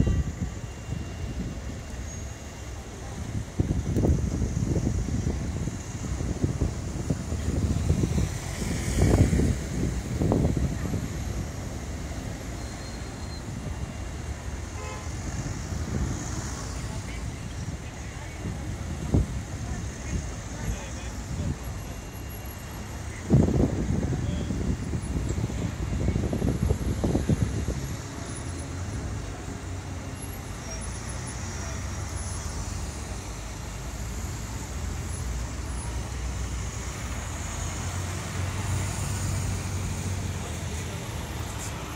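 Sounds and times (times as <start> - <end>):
city street traffic: 0.0 - 41.9.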